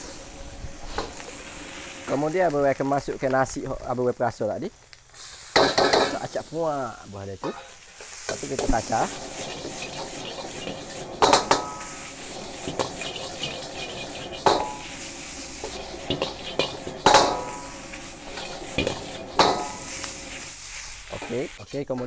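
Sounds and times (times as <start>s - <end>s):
metal ladle scraping a wok: 0.0s - 2.8s, 7.6s - 21.8s
rice sizzling: 0.0s - 22.0s
ladle clanging on wok: 5.6s - 6.2s, 8.6s - 20.5s.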